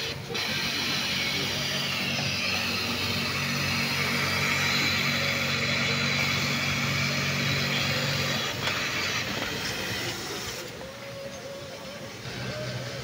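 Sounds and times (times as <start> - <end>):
sewing machine running: 0.0 - 10.8.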